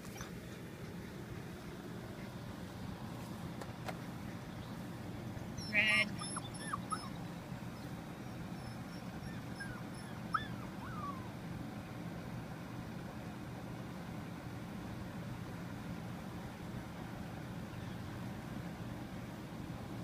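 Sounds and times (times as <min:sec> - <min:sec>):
puppies whimpering and yelping: 0:05.4 - 0:11.4.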